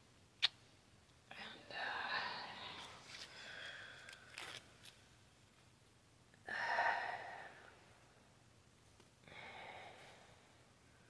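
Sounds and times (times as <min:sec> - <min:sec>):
heavy sighing breaths: 0:01.8 - 0:04.5, 0:09.2 - 0:10.6.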